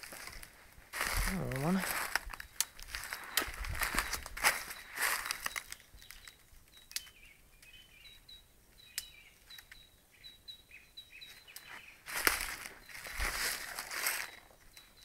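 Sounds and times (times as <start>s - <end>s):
footsteps on dry leaves: 0.0s - 6.2s, 11.4s - 14.6s
small bird chirping: 1.2s - 15.0s.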